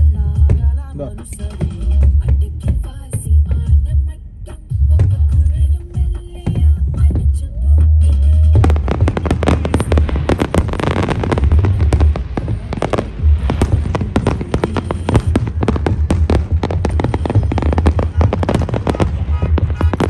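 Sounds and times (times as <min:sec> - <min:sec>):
fireworks bursting and crackling: 0:04.9 - 0:20.0
low rumble: 0:06.6 - 0:20.0.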